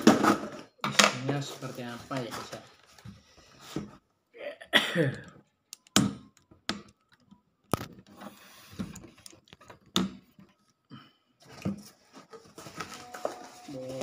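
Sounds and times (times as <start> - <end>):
packaging rustling: 11.4 - 14.0.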